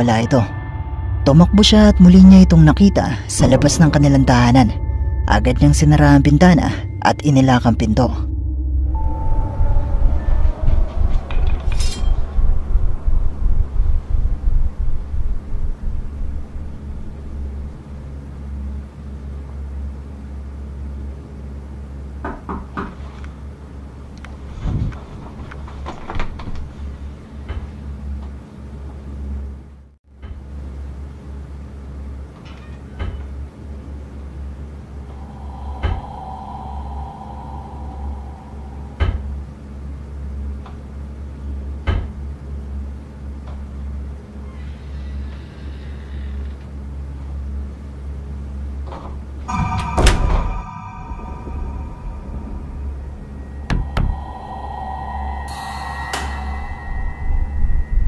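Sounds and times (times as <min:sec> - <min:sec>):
low rumble: 0:00.0 - 0:19.5, 0:34.8 - 0:40.6, 0:48.6 - 0:58.0
steady low drone: 0:00.0 - 0:22.2, 0:33.9 - 0:44.4, 0:45.7 - 0:58.0
thump: 0:49.5 - 0:50.6.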